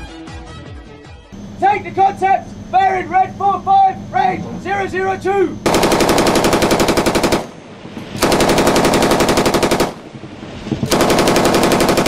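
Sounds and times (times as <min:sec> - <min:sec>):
machine gun automatic fire: 0:05.6 - 0:07.6, 0:08.2 - 0:10.1, 0:10.8 - 0:12.0.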